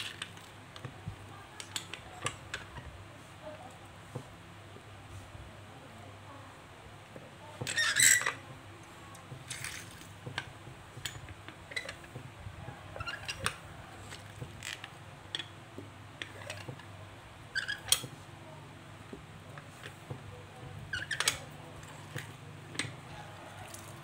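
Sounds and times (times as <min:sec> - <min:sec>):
small clicks and knocks: 0:00.0 - 0:02.9, 0:13.0 - 0:16.9.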